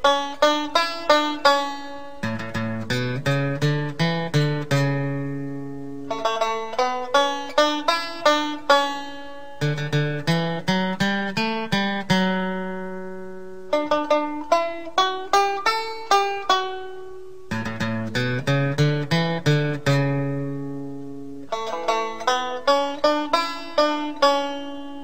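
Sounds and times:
plucked string music: 0.0 - 25.0.

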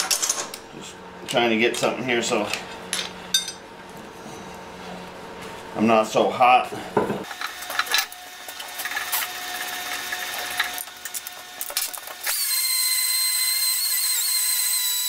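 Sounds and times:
metal tools clinking on bench: 2.9 - 3.6
die grinder whining: 7.3 - 15.0.

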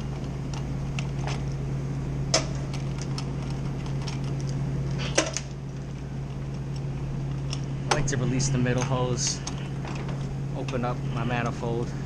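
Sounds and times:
steady low hum: 0.0 - 12.0
clicks and knocks of gauges: 2.3 - 5.6.

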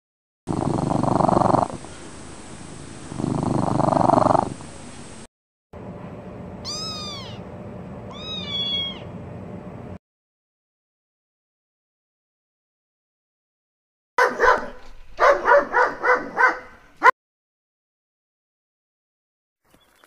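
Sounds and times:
cat purring: 0.5 - 2.0, 3.0 - 4.8
cat mewing: 6.6 - 7.5, 8.1 - 9.1.

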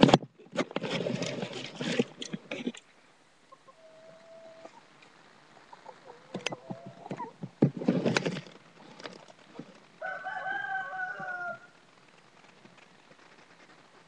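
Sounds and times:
rooster crowing: 10.0 - 11.8.

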